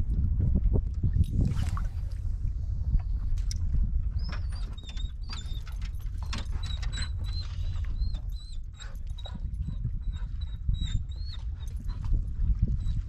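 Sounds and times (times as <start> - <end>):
dog whining: 6.6 - 11.8.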